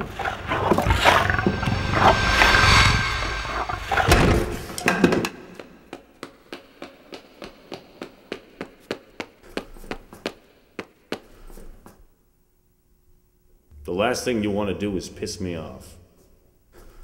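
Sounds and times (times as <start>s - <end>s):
loud hits: 0.1s - 5.4s.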